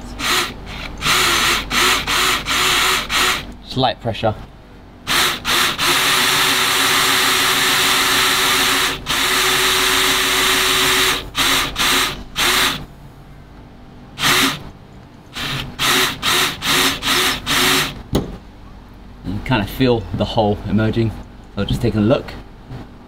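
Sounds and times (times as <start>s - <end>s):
cordless drill boring: 0.0s - 3.5s, 5.1s - 12.8s, 14.2s - 14.6s, 15.3s - 18.0s.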